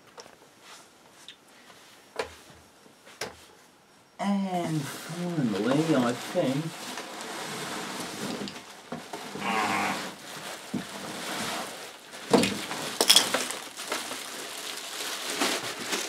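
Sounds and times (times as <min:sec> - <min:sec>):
cardboard and bubble wrap rustling: 0:04.8 - 0:16.0
sharp crackles and knocks: 0:06.7 - 0:16.0.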